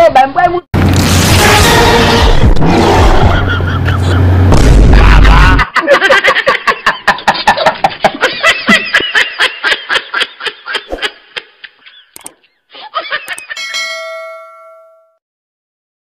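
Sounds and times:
rhythmic laughter: 0:03.2 - 0:13.7
click: 0:12.1 - 0:12.4, 0:13.3 - 0:13.5
bell-like ding: 0:13.6 - 0:15.2.

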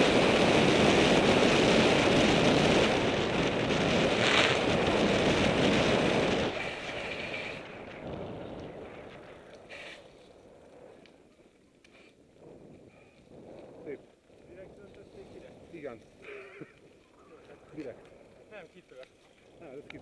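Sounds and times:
wind rushing over microphone: 0:00.0 - 0:11.3, 0:12.2 - 0:16.2.

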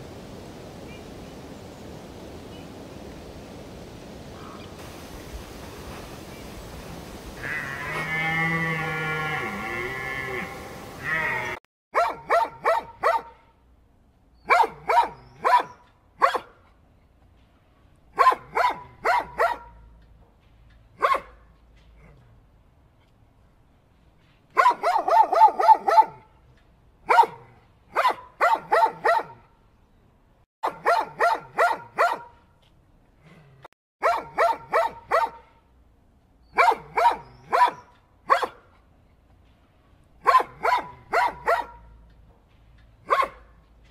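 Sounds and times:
dog barking: 0:11.9 - 0:13.4, 0:14.4 - 0:16.6, 0:18.2 - 0:19.8, 0:21.0 - 0:21.4, 0:24.6 - 0:26.3, 0:27.0 - 0:29.4, 0:30.6 - 0:32.4, 0:34.0 - 0:35.6, 0:36.5 - 0:38.6, 0:40.2 - 0:41.9, 0:43.0 - 0:43.6.

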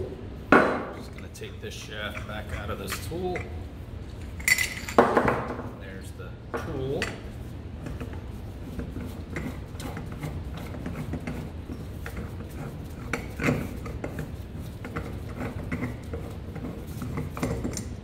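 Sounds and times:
metal scraping and rubbing: 0:07.3 - 0:18.0.

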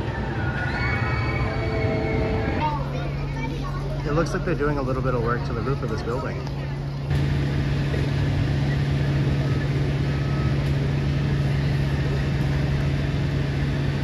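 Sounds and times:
machinery humming: 0:00.0 - 0:14.0.

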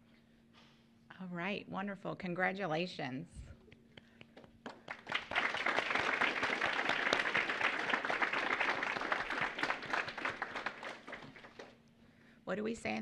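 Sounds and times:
audience applauding: 0:04.6 - 0:11.8.

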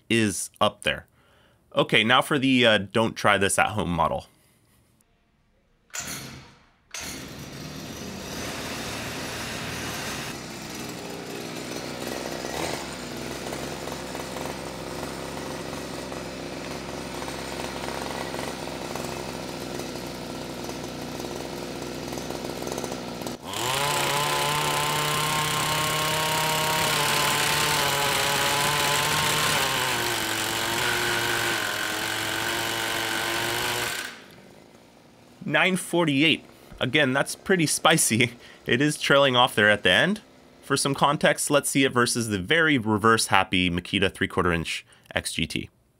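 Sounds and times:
impact wrench hammering: 0:05.9 - 0:34.5
two-stroke engine revving: 0:07.2 - 0:41.2.

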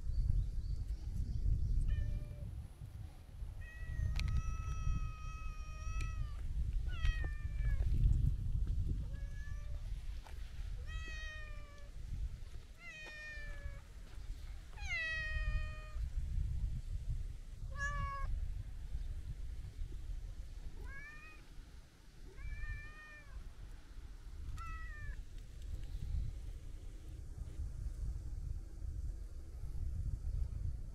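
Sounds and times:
steady low rumble: 0:00.0 - 0:30.9
cat meowing: 0:20.8 - 0:21.4, 0:24.6 - 0:25.2.

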